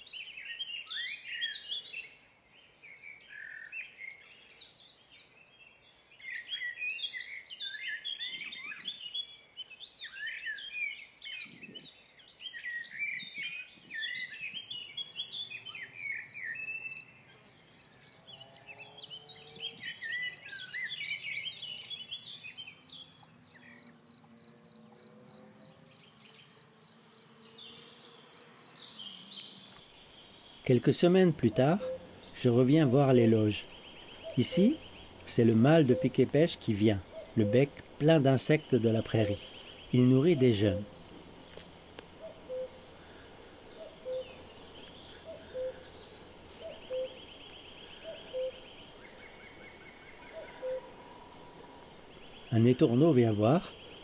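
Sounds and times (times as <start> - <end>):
songbirds chirping: 0.0 - 54.0
cricket singing: 13.0 - 54.0.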